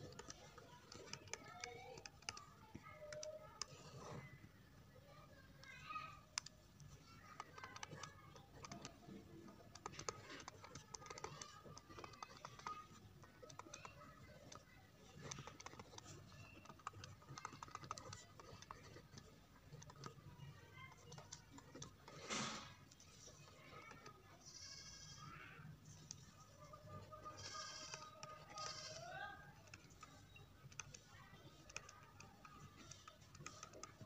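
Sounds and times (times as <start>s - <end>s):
computer input device clicking: 0.0s - 3.7s, 6.3s - 20.2s, 27.0s - 34.0s.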